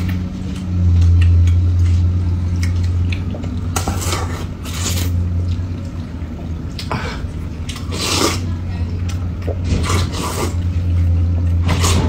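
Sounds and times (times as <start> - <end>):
steady low hum: 0.0 - 12.0
noodle slurping: 7.7 - 8.5, 9.7 - 10.8, 11.6 - 12.0.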